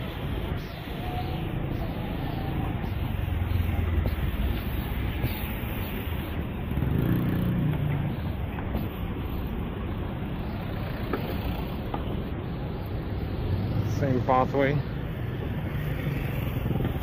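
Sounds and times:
cars driving past: 0.0s - 17.0s.

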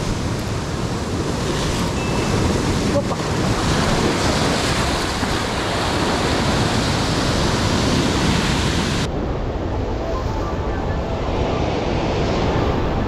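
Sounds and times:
surf breaking over rocks: 0.0s - 9.1s
wind buffeting microphone: 0.0s - 13.0s.

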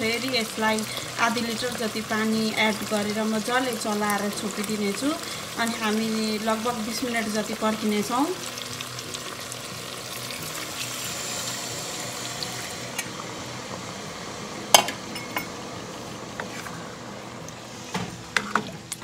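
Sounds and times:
water sizzling in hot pot: 0.0s - 16.7s
wooden spatula stirring in pot: 16.4s - 16.8s.

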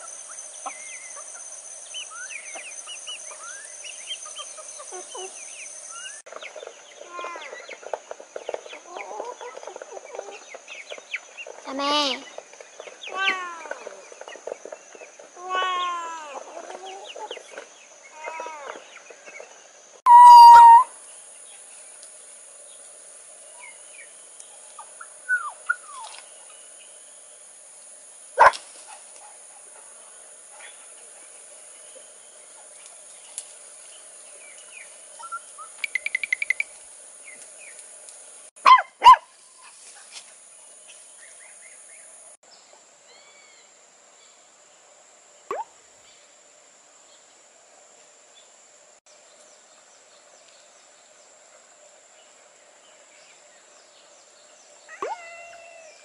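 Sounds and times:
steady high hiss: 0.0s - 8.2s, 15.1s - 56.0s
animal calls: 20.1s - 20.9s, 54.9s - 56.0s.

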